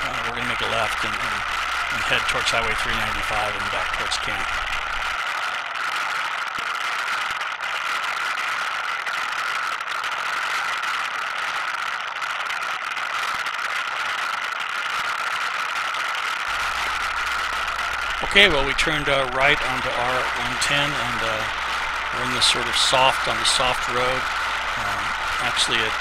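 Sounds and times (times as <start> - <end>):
atv engine running: 0.0 - 5.2, 16.5 - 26.0.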